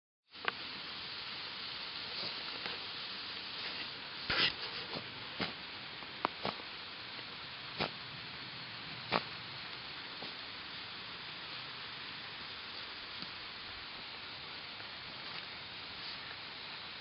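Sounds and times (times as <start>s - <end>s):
dogs digging in dirt: 7.7s - 8.1s.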